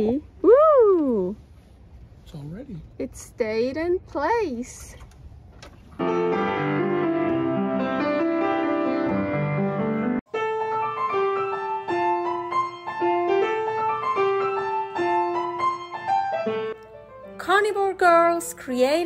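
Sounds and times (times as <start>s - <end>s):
piano chords: 6.0s - 19.0s
simple piano melody: 6.0s - 19.0s.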